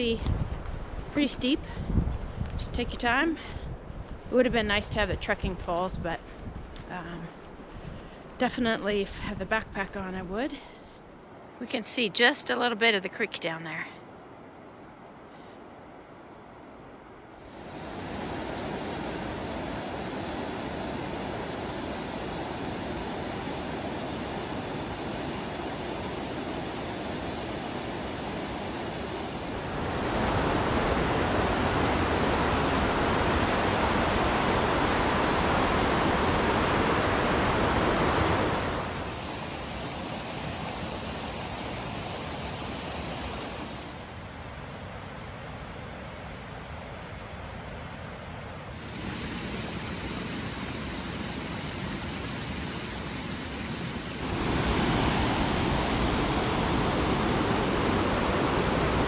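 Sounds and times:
whitewater creek rushing: 0:17.5 - 0:44.2, 0:48.7 - 0:59.0.

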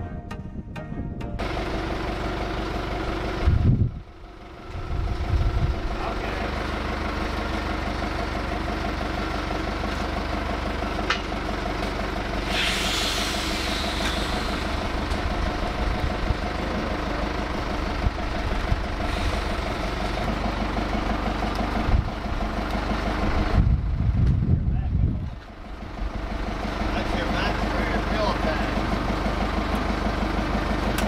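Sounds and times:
diesel engine idling: 0:01.1 - 0:31.0
hiss: 0:12.4 - 0:14.8.

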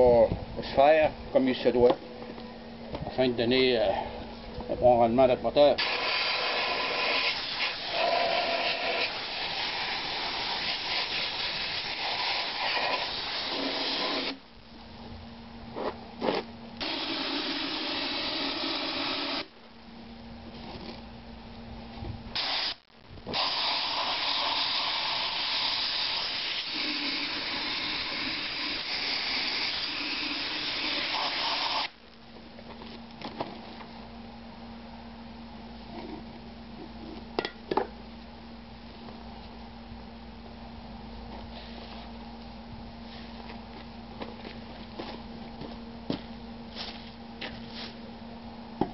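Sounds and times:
sandblasting gun hissing: 0:05.8 - 0:14.4, 0:16.8 - 0:19.5, 0:22.4 - 0:31.9.

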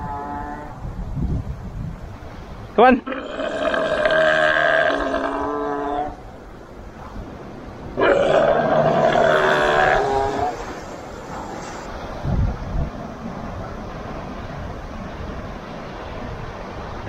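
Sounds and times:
seal calling: 0:00.0 - 0:00.8, 0:03.1 - 0:06.3, 0:08.0 - 0:12.0.

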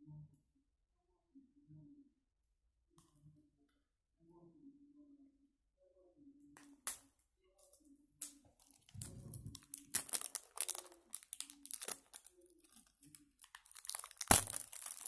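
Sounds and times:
plastic seal crinkling and tearing: 0:08.6 - 0:15.0.

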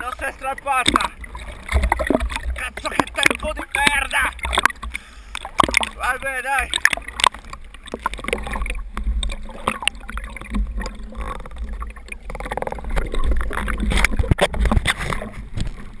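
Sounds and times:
water churning and bubbling: 0:00.0 - 0:16.0.

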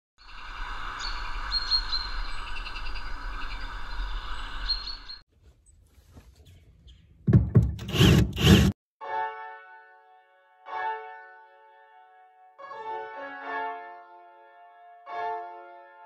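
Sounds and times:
steady outdoor hum: 0:00.2 - 0:04.7
birds chirping and trilling: 0:00.2 - 0:05.2, 0:06.4 - 0:08.1.

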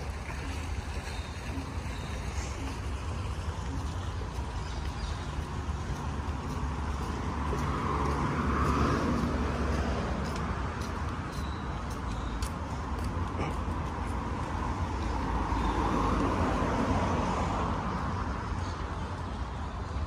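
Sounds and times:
rumble of passing cars: 0:00.0 - 0:20.0
vehicle passing loudly: 0:06.0 - 0:10.8.

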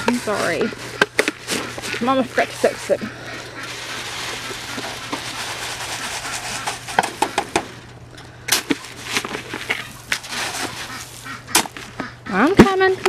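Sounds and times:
dry grain pouring into plastic bowl: 0:03.7 - 0:07.0, 0:09.0 - 0:11.4.

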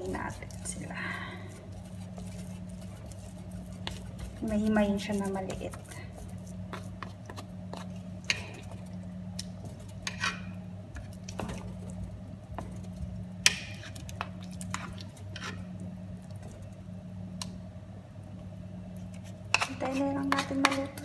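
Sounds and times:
steady low hum: 0:00.0 - 0:21.0
fork and spatula scraping pot: 0:10.0 - 0:10.6, 0:14.6 - 0:15.7, 0:19.2 - 0:21.0.

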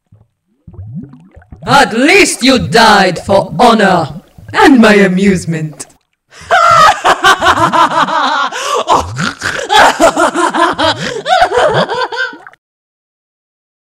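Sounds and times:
woman laughing mockingly: 0:06.5 - 0:12.4.

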